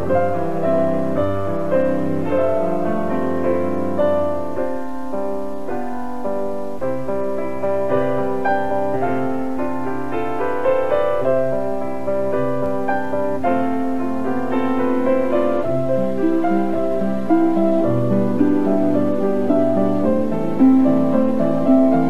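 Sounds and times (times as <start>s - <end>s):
instrumental background music: 0.0s - 22.0s.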